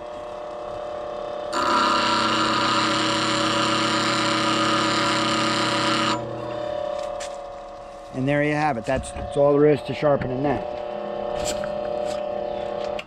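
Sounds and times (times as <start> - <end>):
grinder motor humming: 0.0 - 13.0
tool grinding on stone: 1.5 - 8.2, 10.5 - 13.0.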